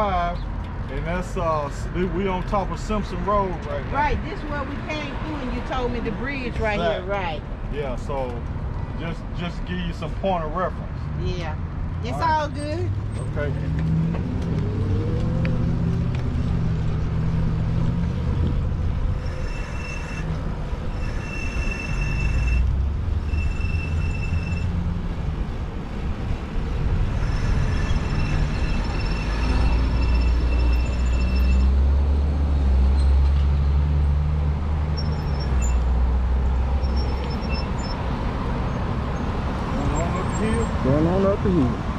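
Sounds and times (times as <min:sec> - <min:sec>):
road traffic rumble: 0:00.0 - 0:41.9
high-pitched whine: 0:18.7 - 0:25.0, 0:26.2 - 0:31.8.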